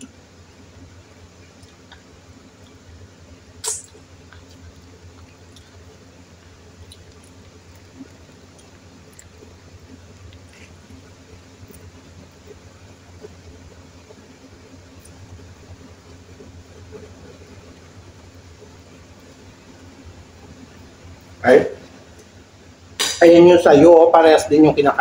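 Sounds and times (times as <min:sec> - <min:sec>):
low steady hum: 0:00.0 - 0:25.0
small eating clicks: 0:01.2 - 0:19.7
wet chewing: 0:03.6 - 0:12.6.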